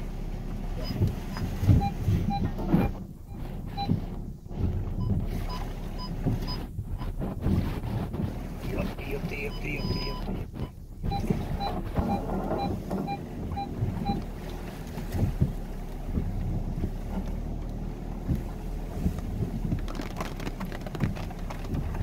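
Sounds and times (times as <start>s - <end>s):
low engine and road drone: 0.0s - 22.0s
wheels knocking over bumps: 0.0s - 22.0s
electronic beep: 9.4s - 10.2s.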